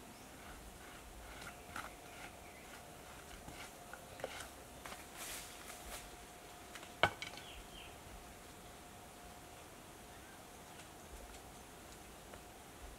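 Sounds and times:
hand work scrapes and clicks: 0.4s - 4.5s.

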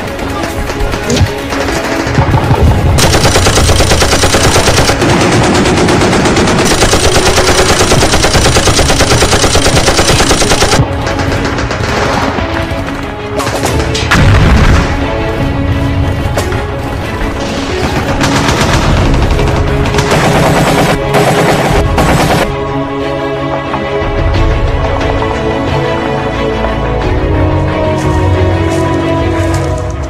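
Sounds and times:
background music: 0.0s - 30.0s
rapid automatic gunfire: 0.1s - 12.5s, 17.8s - 22.5s.

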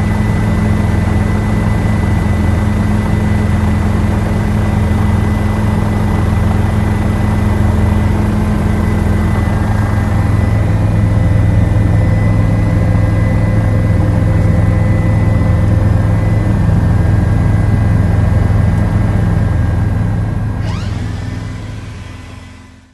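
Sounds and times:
aircraft engine drone: 0.0s - 22.9s
thin steady whines: 19.7s - 22.9s.

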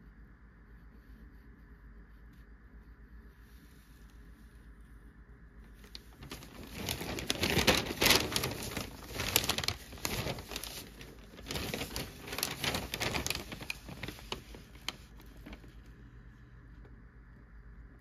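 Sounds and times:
newspaper pages rustling: 5.7s - 16.0s.

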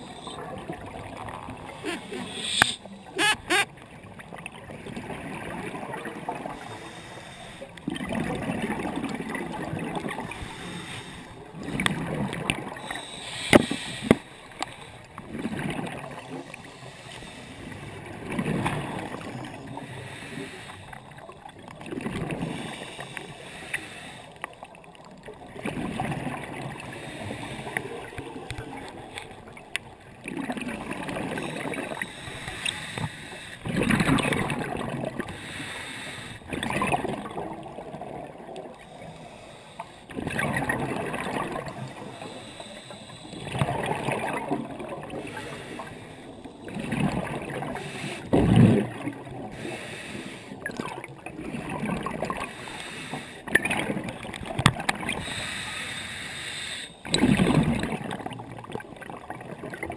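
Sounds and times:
underwater regulator breathing bubbles: 1.5s - 3.7s, 10.4s - 15.5s.

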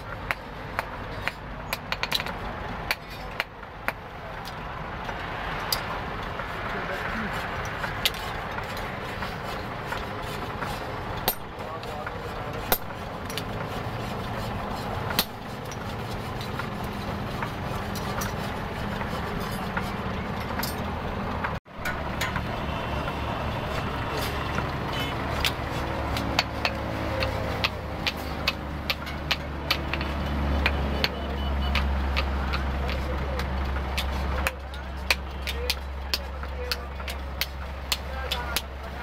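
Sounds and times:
road traffic rumble: 0.0s - 39.0s
hammer striking hot steel on anvil: 15.0s - 16.7s, 25.4s - 33.0s.

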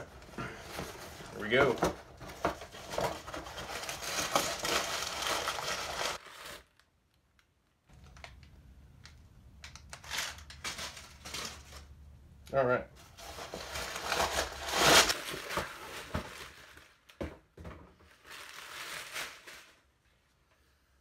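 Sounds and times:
cardboard rustling: 0.0s - 6.7s, 13.0s - 19.7s
packing tape and cardboard tearing: 0.0s - 6.9s, 9.6s - 11.9s, 13.1s - 17.2s.

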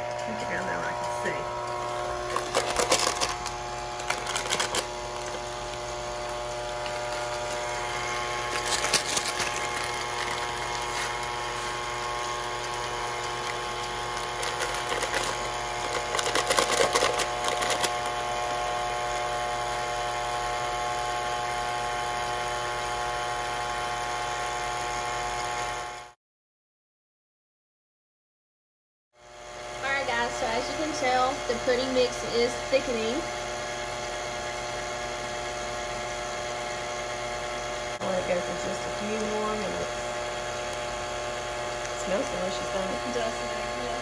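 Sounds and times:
stand mixer whisking: 0.0s - 26.1s
paper packets crinkling: 2.1s - 18.2s.

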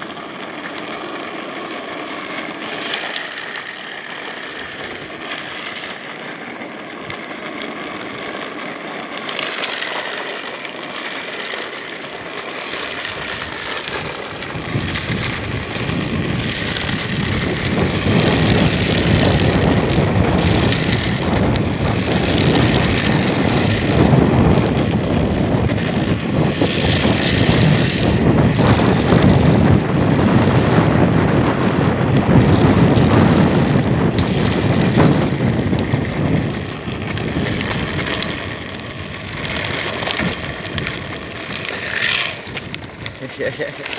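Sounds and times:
wheels rolling on asphalt: 0.0s - 43.9s
wind on microphone: 12.8s - 43.9s.

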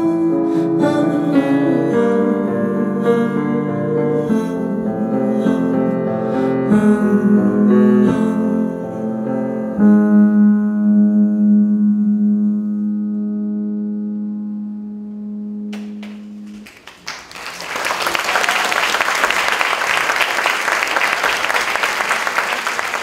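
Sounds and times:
audience applause: 15.8s - 23.0s.

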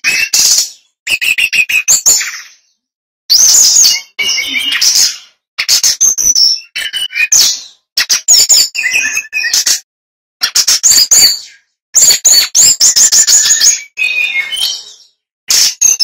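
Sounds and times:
bird singing chirps and trills: 3.3s - 5.4s.

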